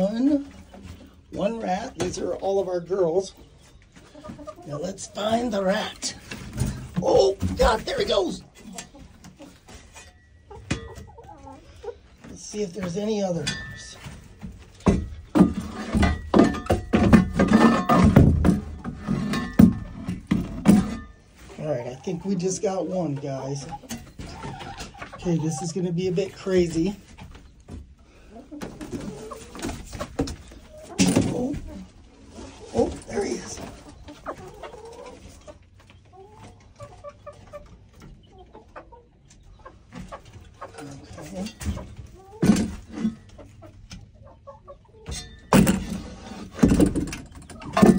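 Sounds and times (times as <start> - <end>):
hens clucking softly: 3.0 - 7.1, 8.4 - 13.4, 21.5 - 47.9.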